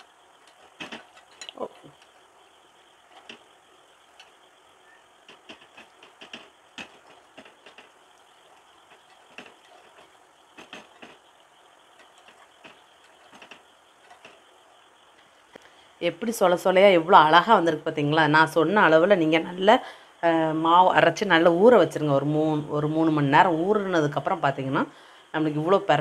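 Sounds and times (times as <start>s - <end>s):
faint sizzle of frying: 0.0s - 16.6s.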